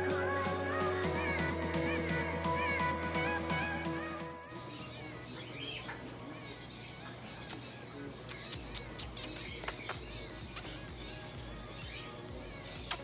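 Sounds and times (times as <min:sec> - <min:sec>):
background music: 0:00.0 - 0:05.3, 0:08.8 - 0:13.0
parrots chirping and squawking: 0:04.4 - 0:13.0.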